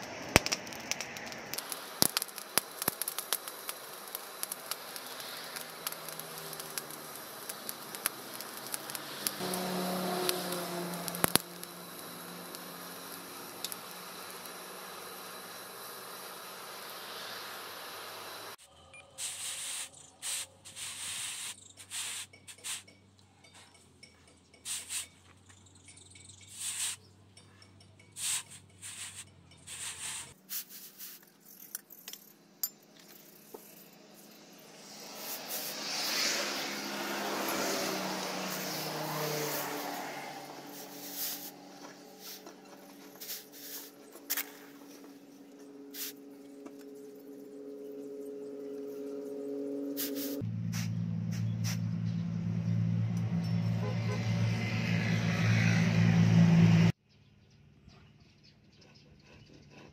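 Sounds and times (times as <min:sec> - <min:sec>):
hot steel quenching hiss: 0:00.0 - 0:18.6, 0:19.2 - 0:22.9, 0:24.7 - 0:25.2, 0:26.5 - 0:27.1, 0:28.2 - 0:31.2, 0:33.4 - 0:44.8, 0:45.9 - 0:46.3, 0:50.0 - 0:50.9
charcoal forge crackling: 0:00.0 - 0:25.5, 0:26.4 - 0:57.0.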